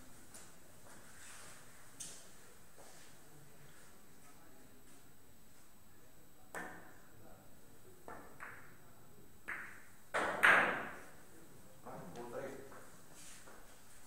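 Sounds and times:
cue striking billiard ball: 9.5s - 11.0s.

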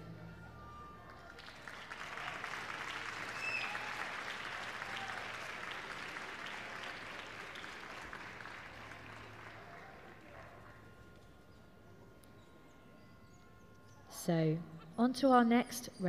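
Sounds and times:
audience applauding: 0.6s - 10.7s.

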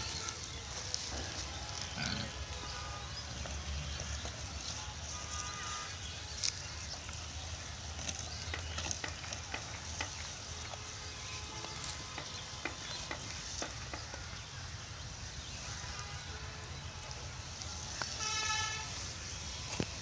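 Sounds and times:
vehicle horn honk: 2.0s - 3.4s, 4.8s - 6.2s, 15.6s - 19.9s.

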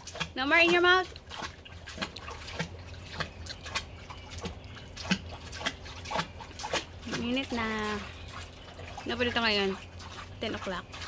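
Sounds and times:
hands splashing water: 0.0s - 11.0s.

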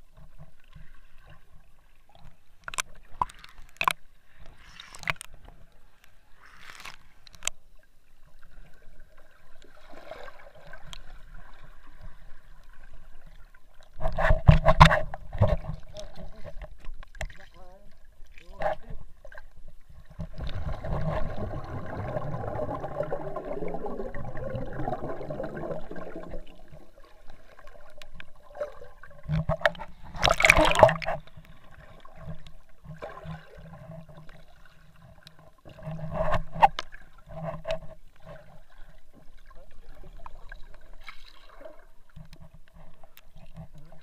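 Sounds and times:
water sloshing underwater: 0.0s - 44.0s
water splash: 28.5s - 31.4s.

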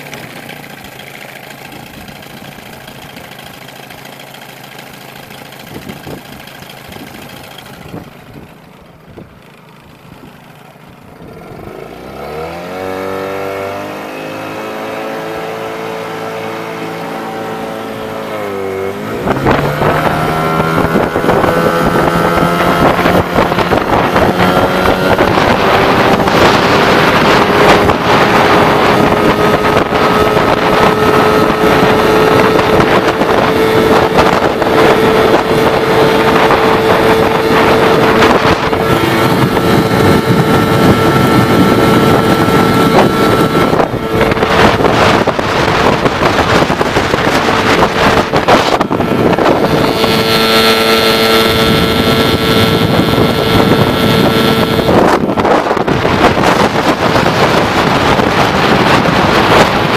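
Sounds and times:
outboard motor running: 0.0s - 59.9s
wind on microphone: 5.4s - 9.4s, 10.0s - 59.9s.

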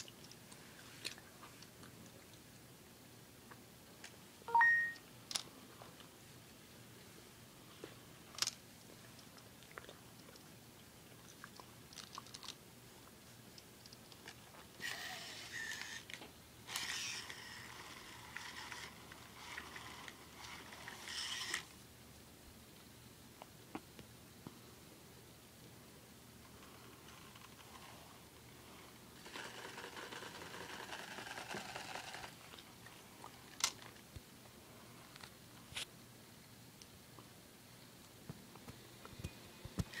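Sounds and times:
robot whirring and scraping: 14.8s - 16.1s, 16.7s - 21.7s.

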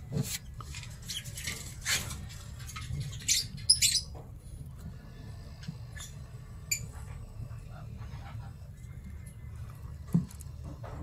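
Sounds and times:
steady low hum: 0.0s - 11.0s
parrots squeaking and chirping: 0.9s - 4.2s, 5.9s - 7.0s.

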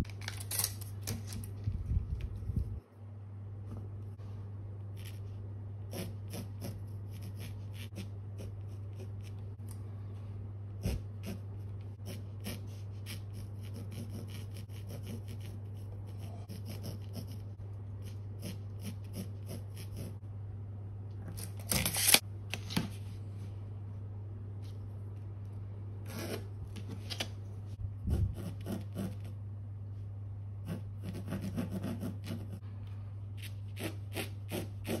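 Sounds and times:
steady low hum: 0.0s - 35.0s
pencil scratching on canvas: 5.9s - 9.4s, 10.8s - 20.2s, 28.0s - 29.3s, 30.6s - 32.6s, 33.4s - 35.0s.

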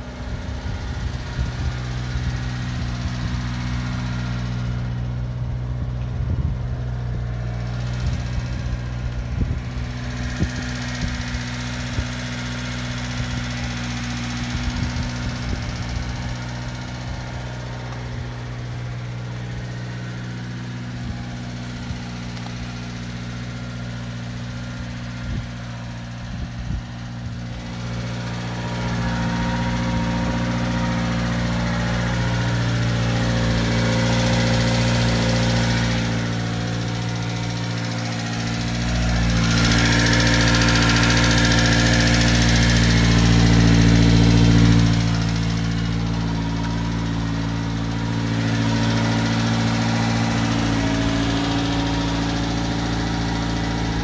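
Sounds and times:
truck engine idling: 0.0s - 54.0s.

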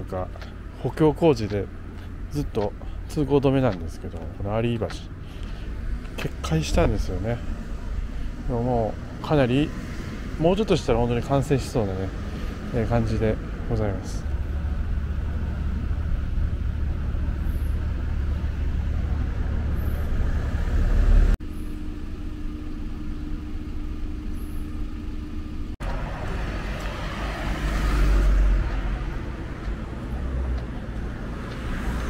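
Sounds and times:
road traffic rumble: 0.0s - 32.0s
car passing: 5.0s - 21.4s, 25.8s - 32.0s
steady hum: 13.4s - 26.6s.

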